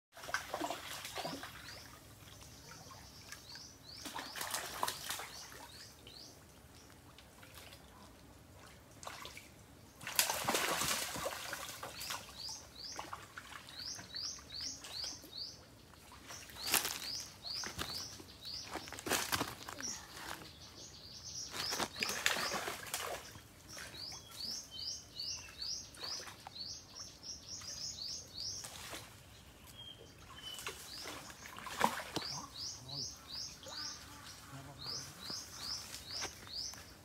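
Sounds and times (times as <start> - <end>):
fish splashing in water: 0.2 - 2.0, 4.0 - 5.7, 10.0 - 12.4, 21.5 - 24.0, 30.5 - 32.4
bird chirping: 13.7 - 37.0.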